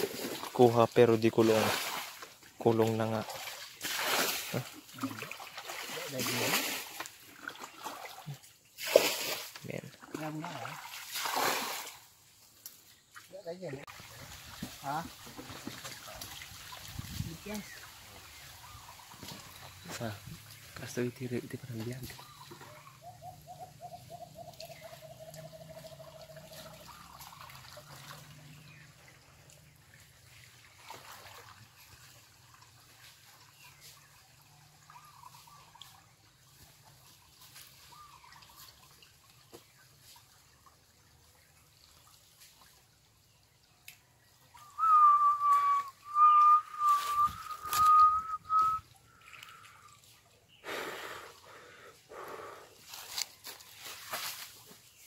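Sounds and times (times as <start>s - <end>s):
stream water trickling: 0.0s - 55.0s
person whistling: 44.8s - 48.8s.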